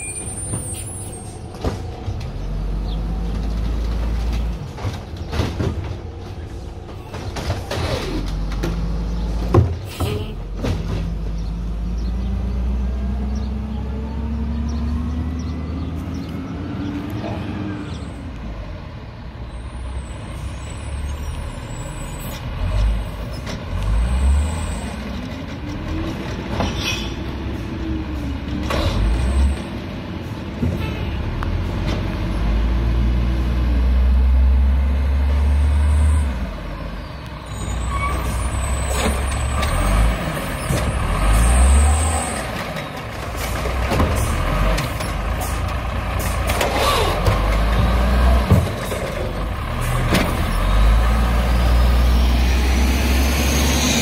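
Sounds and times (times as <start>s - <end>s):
garbage truck diesel engine revving: 31.2s - 54.0s
side-loader arm clattering: 37.2s - 51.5s.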